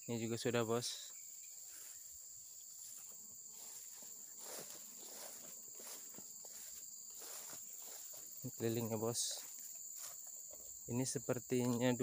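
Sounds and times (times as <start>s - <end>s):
insects droning: 0.0s - 12.0s
footsteps in grass: 1.5s - 10.9s.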